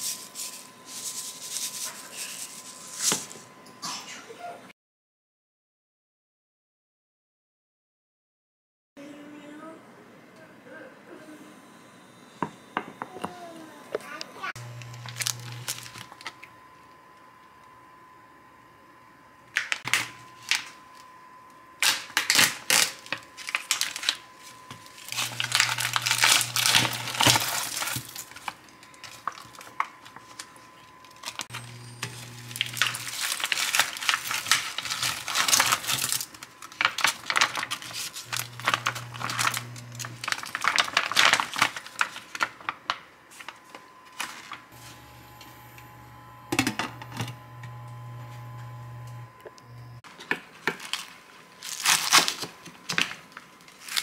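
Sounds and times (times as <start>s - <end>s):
crinkling handling noises: 14.6s - 17.6s, 21.8s - 45.1s, 50.1s - 54.0s.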